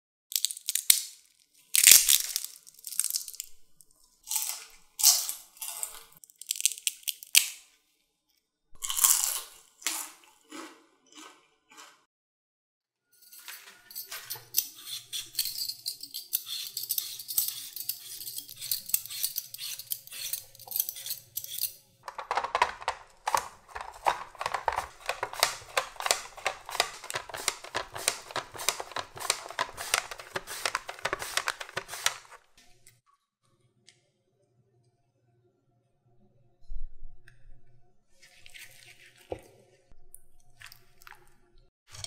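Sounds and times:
potato being peeled: 0.3 - 3.6, 4.2 - 7.6, 14.4 - 21.8, 23.2 - 32.6
mandoline slicer rasping: 14.3 - 21.7, 23.7 - 32.4.

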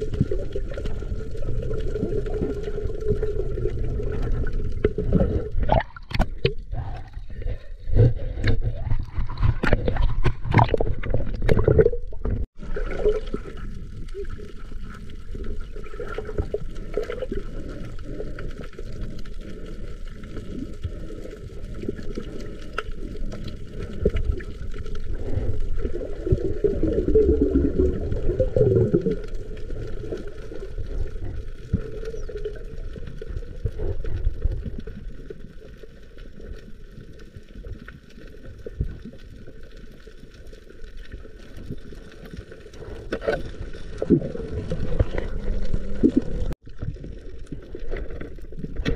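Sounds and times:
muffled water sloshing underwater: 0.0 - 48.9.

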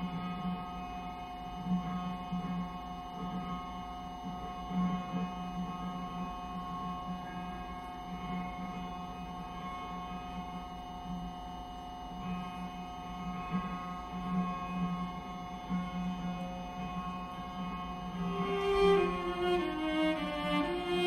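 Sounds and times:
electroacoustic cello drone: 0.0 - 21.0.

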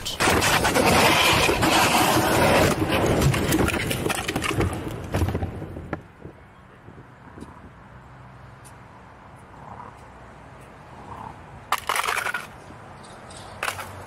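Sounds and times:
motorcycle scraping across asphalt: 0.0 - 4.7.

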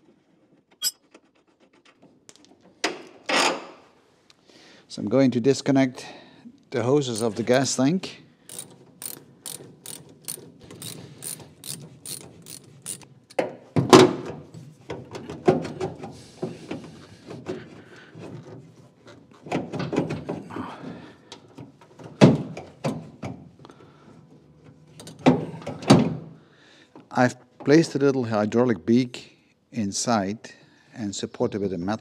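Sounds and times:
ratchet clicking: 7.2 - 7.7, 8.5 - 13.4
ratchet set down on steel: 8.5 - 13.4.

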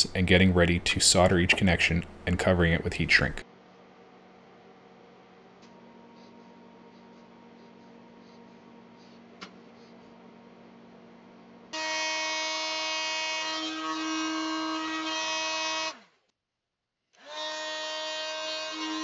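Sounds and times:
heat gun whining: 11.8 - 16.1.

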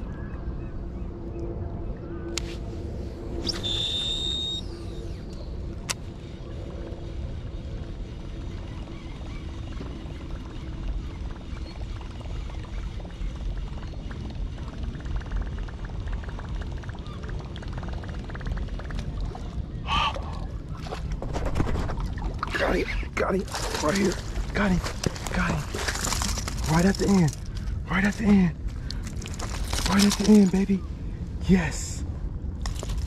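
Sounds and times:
steady low rumble: 0.0 - 33.0
fishing line whirring off reel: 2.3 - 14.8.

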